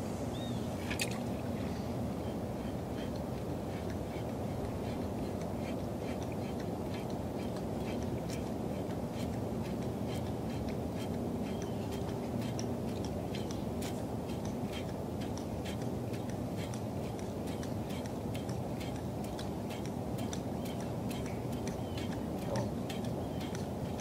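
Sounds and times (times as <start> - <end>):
open-air noise: 0.0 - 24.0.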